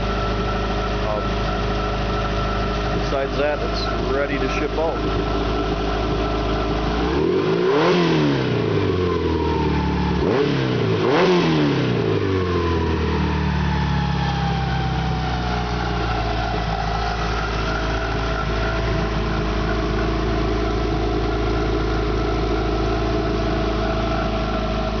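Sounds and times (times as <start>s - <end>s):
car engine idling: 0.0s - 25.0s
whine gliding down: 13.8s - 21.4s.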